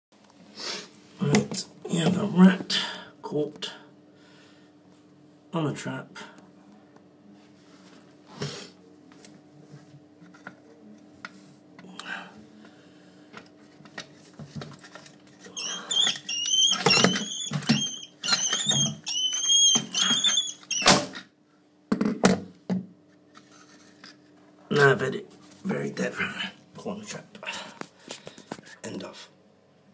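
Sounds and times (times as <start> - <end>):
rat squealing: 15.5 - 21.0.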